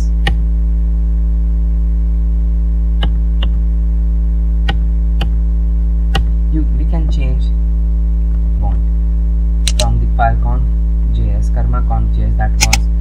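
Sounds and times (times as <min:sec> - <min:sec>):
electrical mains hum: 0:00.0 - 0:13.0
keyboard key clicks: 0:09.7 - 0:09.9.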